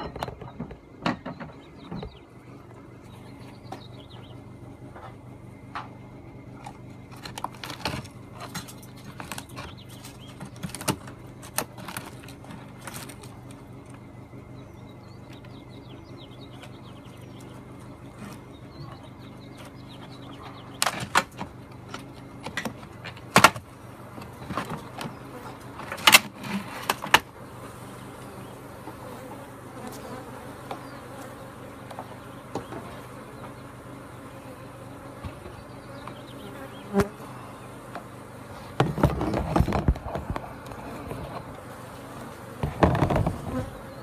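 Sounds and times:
honeybees buzzing: 0.0s - 44.0s
wood cracking under pry bar: 7.1s - 13.6s.

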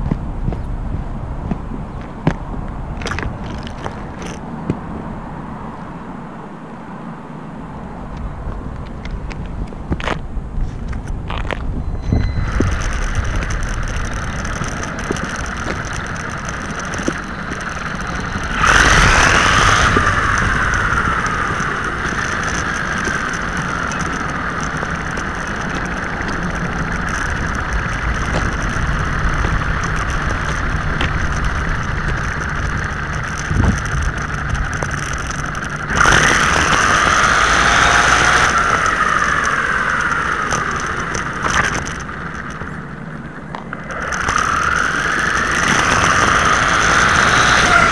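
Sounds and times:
toy truck motor whining: 12.0s - 42.6s, 43.8s - 47.9s.

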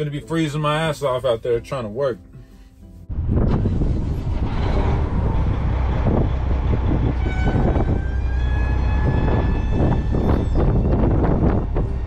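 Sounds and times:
wind buffeting microphone: 3.1s - 12.0s
horn-like steady tone: 6.9s - 12.0s.

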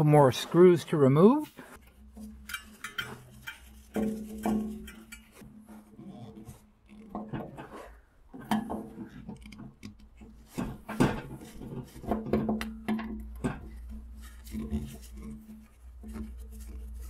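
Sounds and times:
screwdriver scraping rusty screws: 1.8s - 5.4s.

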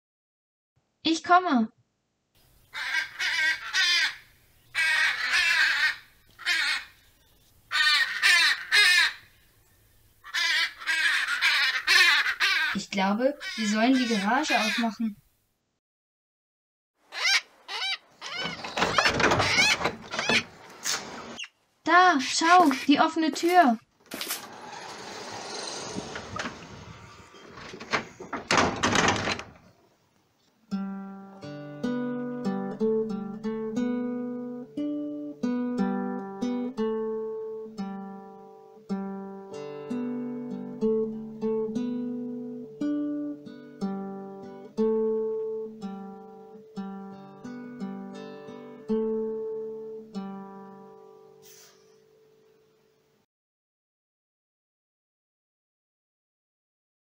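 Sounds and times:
parrot squawking: 2.7s - 7.0s, 7.7s - 9.2s, 10.2s - 12.8s, 13.4s - 15.0s, 17.1s - 20.6s, 21.3s - 21.6s
garage door clatter shutting: 18.3s - 21.4s, 24.1s - 29.7s
garage door sliding: 18.3s - 21.4s, 24.0s - 29.7s.

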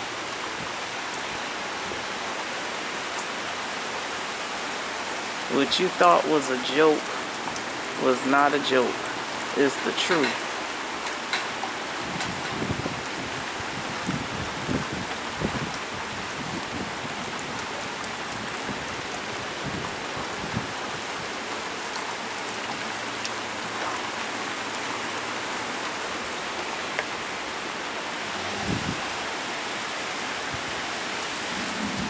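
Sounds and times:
heavy rain pattering: 0.0s - 32.0s
wind buffeting microphone: 11.3s - 21.3s, 28.1s - 29.5s.

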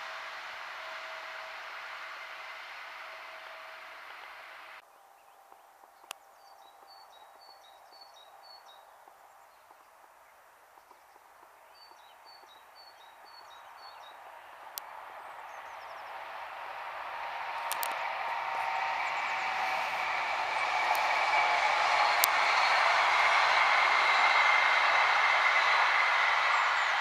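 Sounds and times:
train rolling: 0.0s - 4.8s, 11.8s - 27.0s
songbird chirping: 3.4s - 27.0s.

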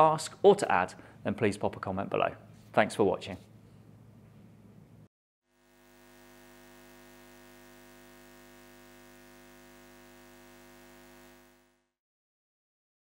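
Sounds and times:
faint hum of held tones: 3.6s - 11.9s.

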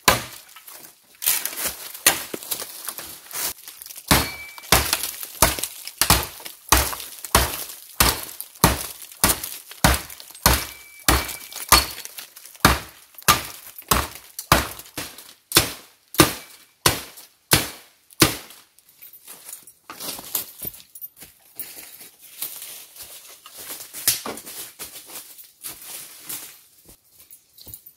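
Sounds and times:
shovel chopping bamboo: 0.0s - 18.6s.

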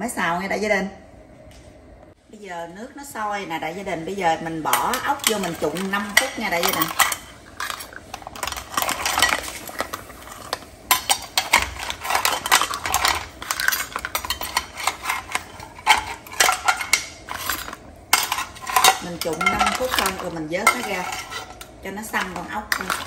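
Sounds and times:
metal skimmer clinking on pan: 10.9s - 21.6s.

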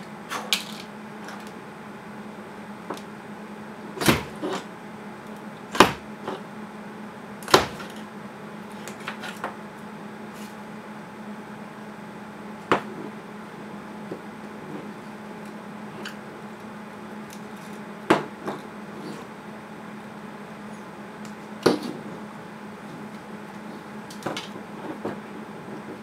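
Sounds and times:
faint steady hum: 0.0s - 26.0s
wire insulation snapping and clicking: 4.0s - 4.6s.

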